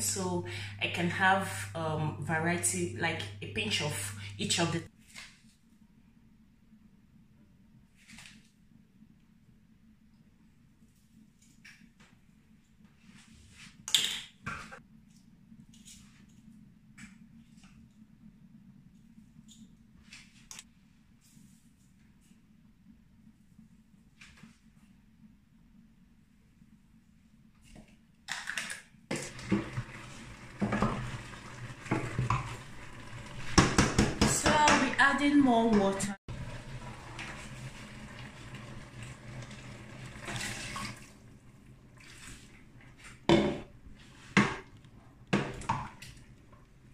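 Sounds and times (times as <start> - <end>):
steady low hum: 0.0 - 4.9
wooden spoon stirring in pot: 29.1 - 39.2.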